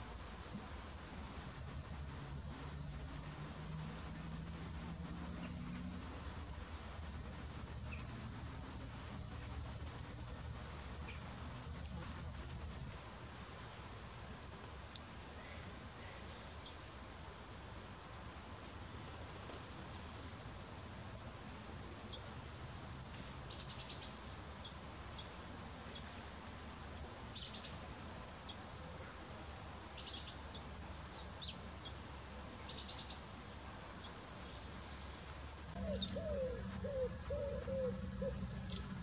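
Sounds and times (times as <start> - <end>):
faint low rumble: 0.0 - 17.4, 33.9 - 39.0
bird chirps: 34.8 - 39.0.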